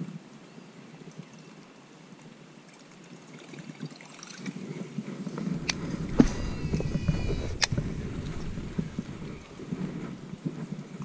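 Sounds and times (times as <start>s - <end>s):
faint outdoor hiss: 0.0s - 11.0s
wind on microphone: 4.5s - 11.0s
microphone handling noise: 5.3s - 10.8s.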